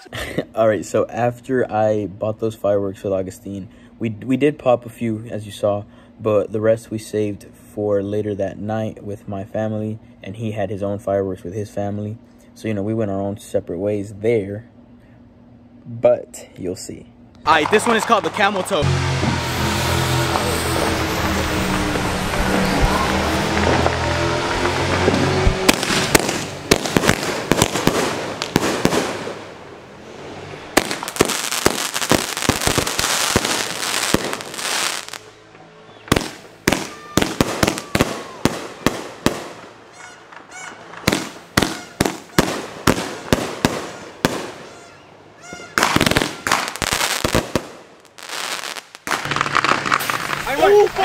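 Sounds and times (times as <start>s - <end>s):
firework bangs: 17.5s - 35.4s, 36.1s - 51.0s
firework shots crackling: 17.5s - 35.4s, 36.1s - 51.0s
firework hissing rushes: 25.4s - 35.3s, 45.8s - 51.0s.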